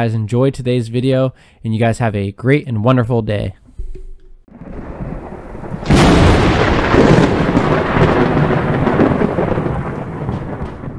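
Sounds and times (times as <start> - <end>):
sharp thunder crack: 4.5 - 10.9
thunder rumble: 4.5 - 10.9.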